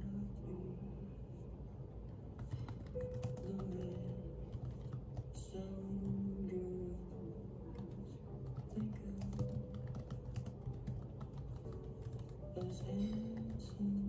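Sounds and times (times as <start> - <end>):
background music with low notes: 2.3 - 14.0
typing on laptop keyboard: 2.4 - 5.4, 7.8 - 14.0.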